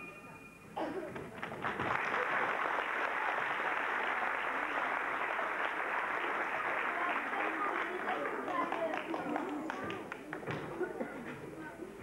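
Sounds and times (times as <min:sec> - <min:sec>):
audience applause: 0:01.3 - 0:10.4.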